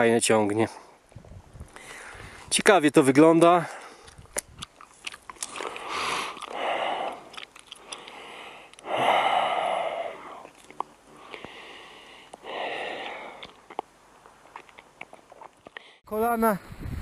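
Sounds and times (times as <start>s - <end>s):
person breathing hard: 1.8s - 2.5s, 5.6s - 10.5s, 11.1s - 13.6s.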